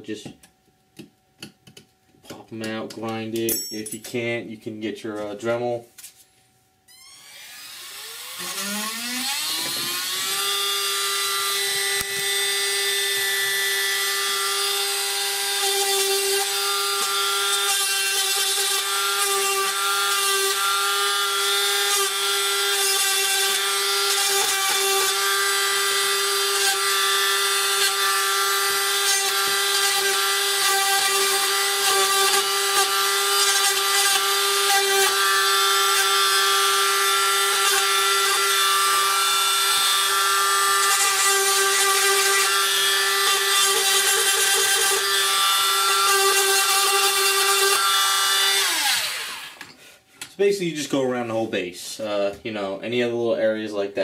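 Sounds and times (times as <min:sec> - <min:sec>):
rotary tool grinding resin: 0:06.9 - 0:49.6
rotary tool whining: 0:06.9 - 0:49.8.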